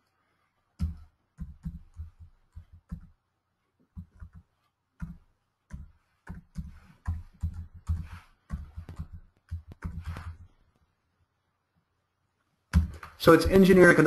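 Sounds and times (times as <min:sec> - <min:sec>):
keyboard typing: 0:00.8 - 0:03.2, 0:04.0 - 0:10.5.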